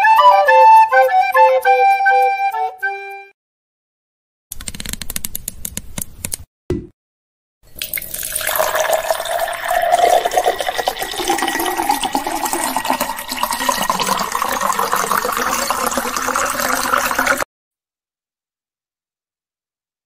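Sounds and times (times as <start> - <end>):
drink pouring into a glass: 7.7 - 17.4.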